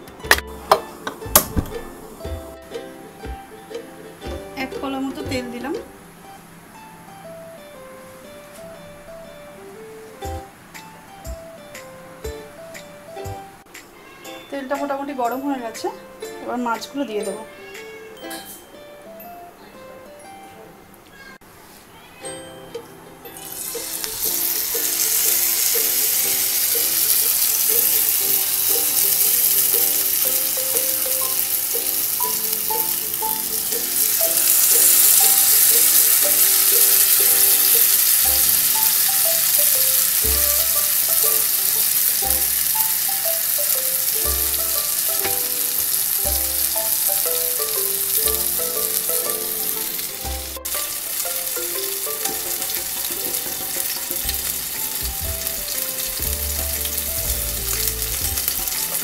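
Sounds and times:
soft background music: 0.0s - 21.1s, 22.2s - 59.0s
low beat: 0.2s - 6.0s, 54.2s - 58.8s
fish sizzling in hot oil: 23.4s - 59.0s.

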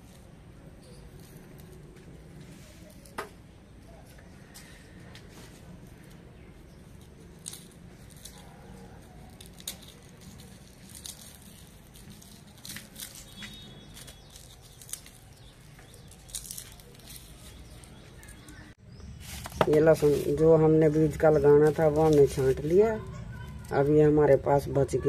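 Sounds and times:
garlic skins crackling: 0.0s - 25.0s
garlic cloves snapping apart: 7.0s - 18.5s.

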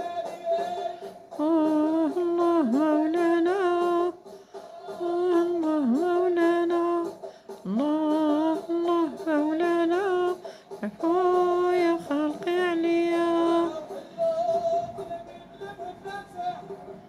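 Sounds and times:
man singing a chant: 0.0s - 4.1s, 7.7s - 16.9s.

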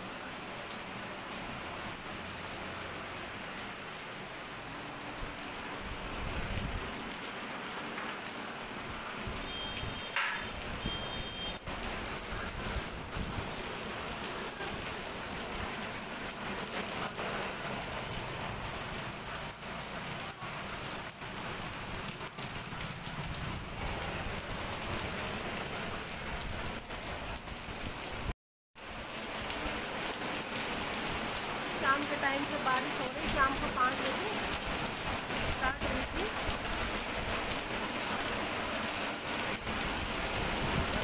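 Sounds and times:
heavy rain hissing: 0.0s - 41.0s
rain drops ticking: 9.4s - 25.3s.

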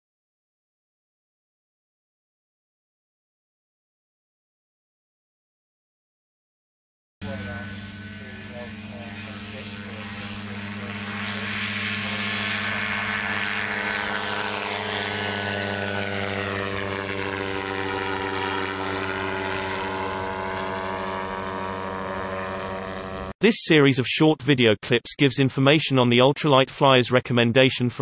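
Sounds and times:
ultralight aircraft engine and propeller: 7.2s - 23.4s.

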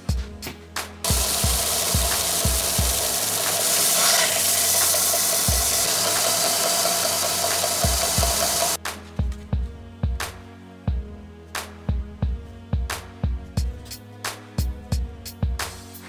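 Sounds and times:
belt sander grinding wood: 1.1s - 8.8s
constant machine tone: 1.1s - 8.8s.

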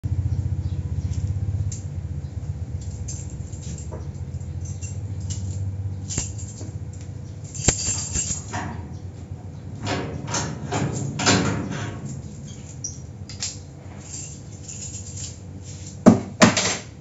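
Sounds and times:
low pulsing hum: 0.0s - 16.4s
metallic door latch clicks: 8.0s - 13.7s
door latch clack: 9.7s - 13.6s.

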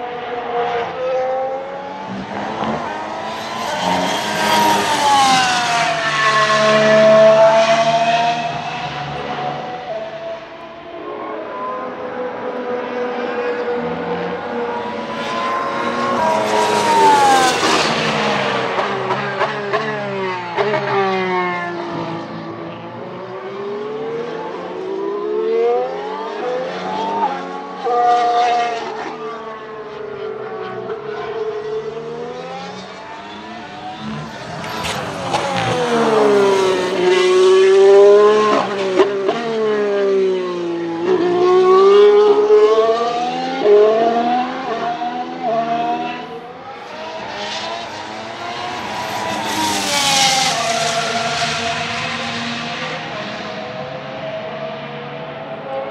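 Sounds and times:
racing car passing with gear shifts: 11.2s - 53.9s.

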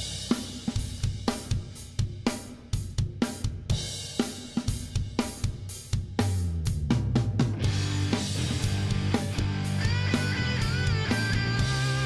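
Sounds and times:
drum kit beat: 0.0s - 12.0s
low bass notes: 6.3s - 12.0s.

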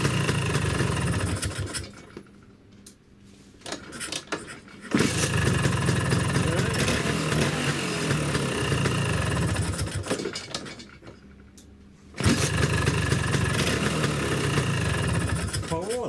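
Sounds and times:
scooter engine running: 0.0s - 2.3s, 4.9s - 10.8s, 12.2s - 16.0s
scooter kick-start: 0.0s - 2.3s, 3.6s - 11.2s, 12.2s - 16.0s.

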